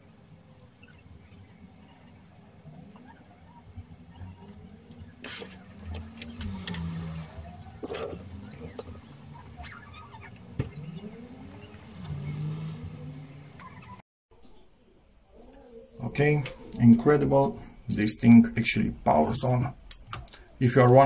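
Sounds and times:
low hum sliding in pitch: 0:02.6 - 0:14.0.

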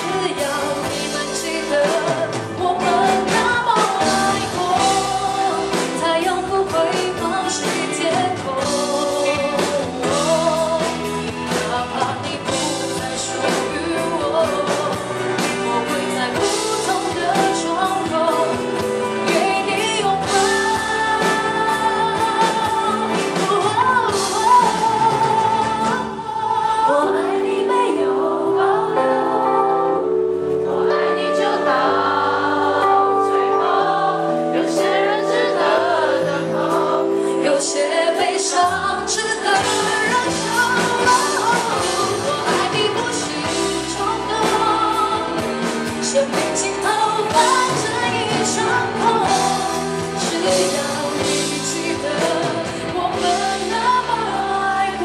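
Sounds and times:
band accompaniment: 0:00.0 - 0:55.0
woman singing pop ballad: 0:00.0 - 0:55.0.

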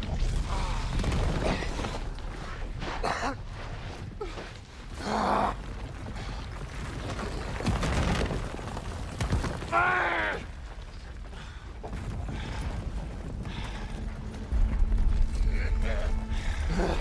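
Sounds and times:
thuds and cracks: 0:06.4 - 0:10.5
low rumble: 0:11.4 - 0:17.0.

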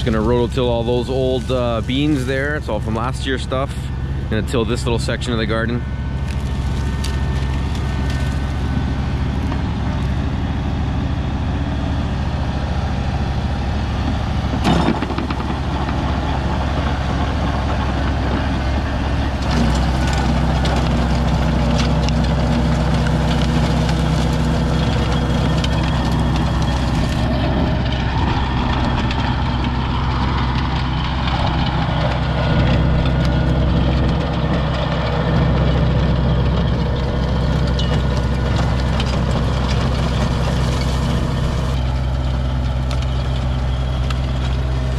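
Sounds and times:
tractor diesel engine drone: 0:00.0 - 0:44.9.

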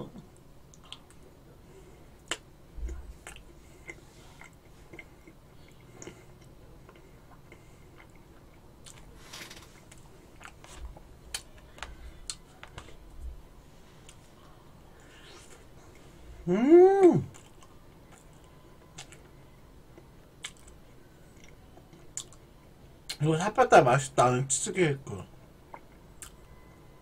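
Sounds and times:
mouth sounds of eating: 0:01.8 - 0:09.1, 0:15.0 - 0:22.4.

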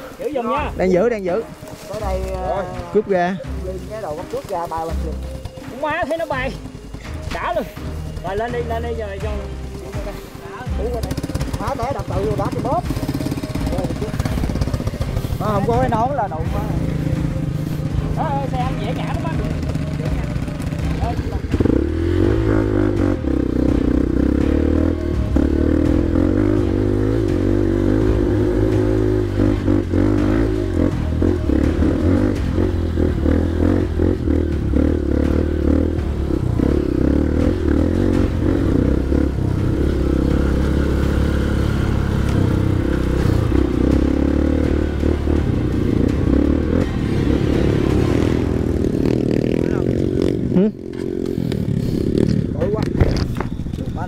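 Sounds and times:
dirt bike engine running: 0:00.0 - 0:54.0
bike rattling over bumps: 0:10.8 - 0:22.6.

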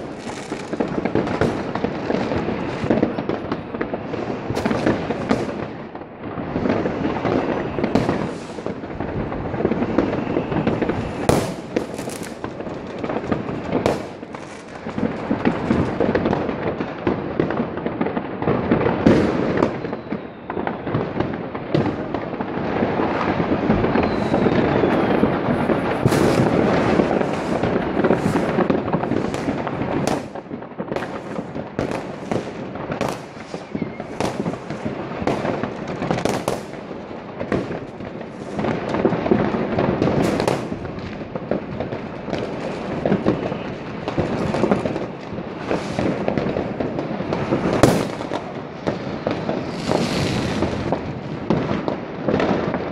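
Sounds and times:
firework bangs: 0:00.0 - 0:52.9
fireworks crackling: 0:00.0 - 0:52.9
firework whistle: 0:06.7 - 0:08.8, 0:09.6 - 0:12.5, 0:19.0 - 0:21.2, 0:22.8 - 0:30.4, 0:31.0 - 0:36.7, 0:47.6 - 0:50.9.

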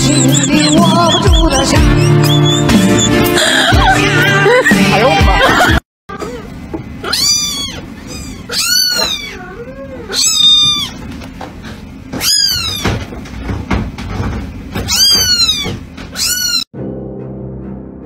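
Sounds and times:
kitten meowing: 0:00.0 - 0:03.3, 0:07.0 - 0:11.0, 0:12.2 - 0:12.9, 0:14.9 - 0:16.7.

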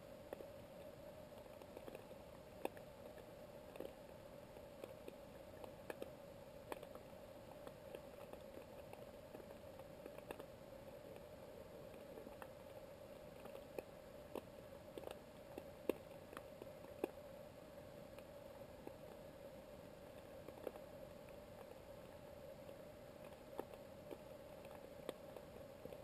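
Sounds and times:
low underwater hum: 0:00.0 - 0:26.0
sharp underwater clicks: 0:00.2 - 0:17.4, 0:18.0 - 0:26.0.

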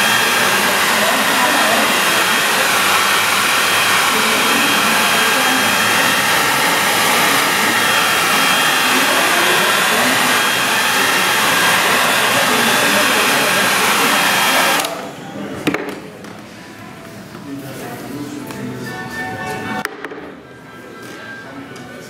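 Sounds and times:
hair dryer blowing: 0:00.0 - 0:15.2.

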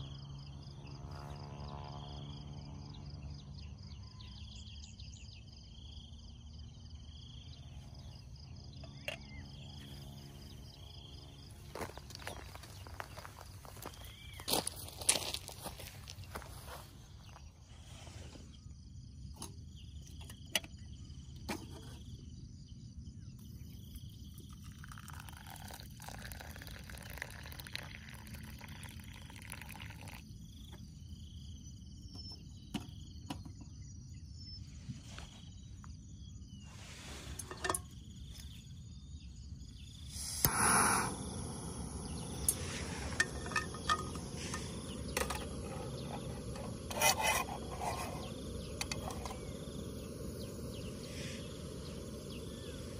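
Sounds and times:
water pouring into steel cup: 0:24.2 - 0:30.4, 0:42.3 - 0:49.6
gas stove hissing: 0:40.0 - 0:52.9
loud rush: 0:40.1 - 0:45.7.

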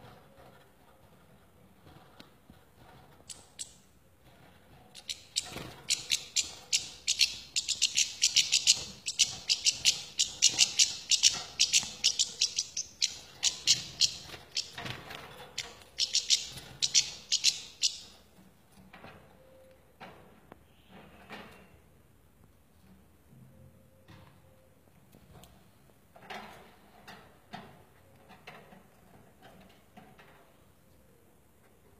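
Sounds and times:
bird chattering calls: 0:05.0 - 0:14.7, 0:16.0 - 0:18.0.

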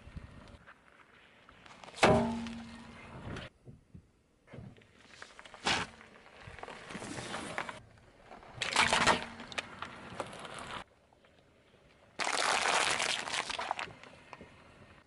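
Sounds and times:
plastic punnet crackling and splitting: 0:12.2 - 0:13.9.

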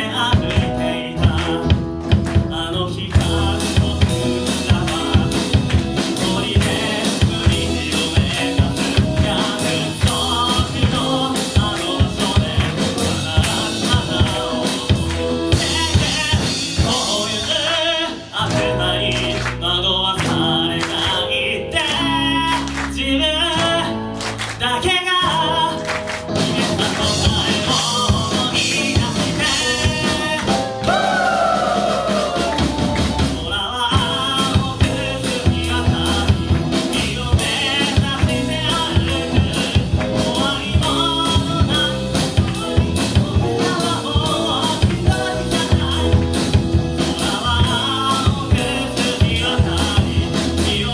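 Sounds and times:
drum kit: 0:00.0 - 0:50.9
electric guitars: 0:00.0 - 0:50.9
sung vocals: 0:00.0 - 0:50.9.

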